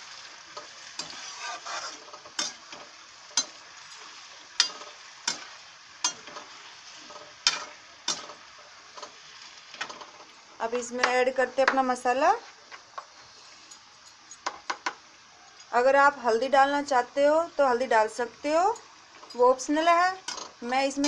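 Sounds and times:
oil sizzling: 0.0s - 21.0s
metal spatula scraping pan: 0.5s - 8.4s.

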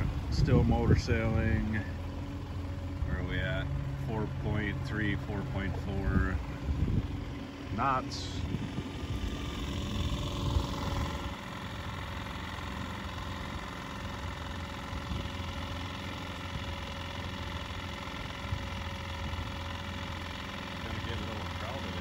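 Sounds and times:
outboard motor running: 0.0s - 22.0s.

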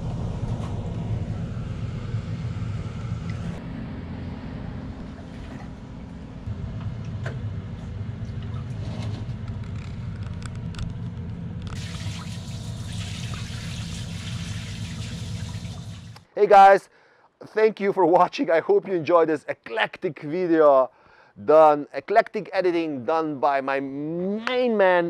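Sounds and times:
low steady rumble: 0.0s - 16.2s
shower hose spraying: 11.8s - 16.2s.

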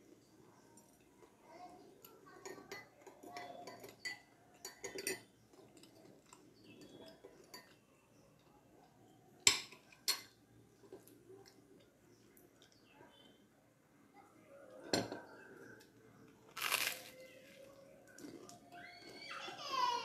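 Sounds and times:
spoon stirring in glass cup: 2.0s - 11.2s
spoon clinking on glass saucer: 2.4s - 7.8s.

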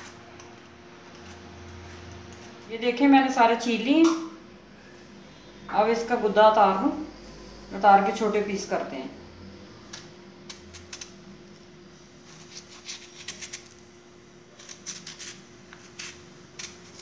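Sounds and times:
faint steady hum: 0.0s - 17.0s
knife cutting mango: 12.2s - 13.8s, 14.6s - 17.0s.

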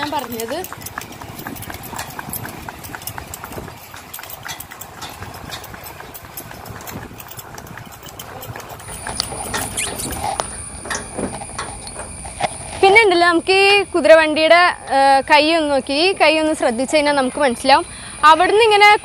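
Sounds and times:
cart rolling: 0.0s - 13.0s
horse hooves clip-clopping on pavement: 0.0s - 13.0s
steady high-pitched tone: 0.0s - 19.0s.

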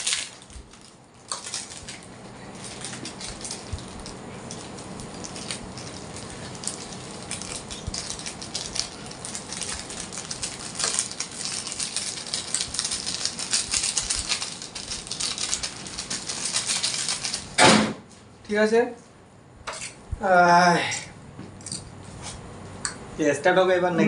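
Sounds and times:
hands mixing dry noodles crackling: 0.0s - 17.6s.

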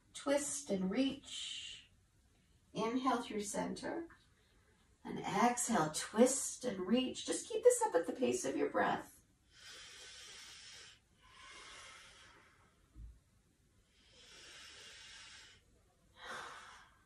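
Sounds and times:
woman breathing: 9.4s - 13.0s, 13.8s - 17.0s.

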